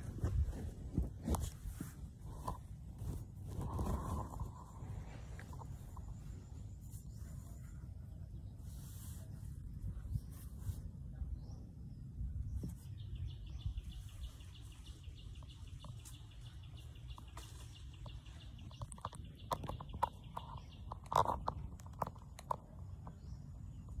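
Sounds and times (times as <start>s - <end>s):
small taps and clicks: 17.1s - 23.2s.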